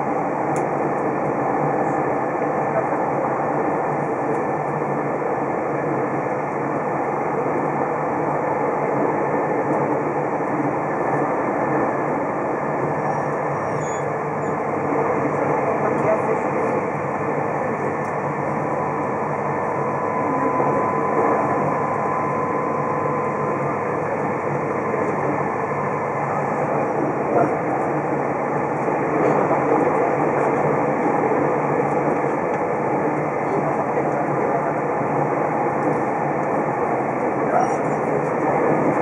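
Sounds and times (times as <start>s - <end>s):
faint high whine: 15.2s - 28.2s.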